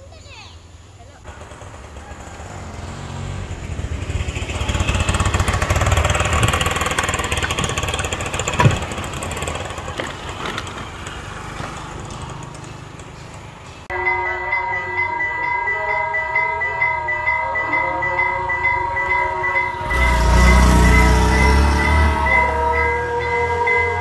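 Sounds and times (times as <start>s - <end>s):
vehicle engine passing by: 1.3s - 13.9s, 19.0s - 24.0s.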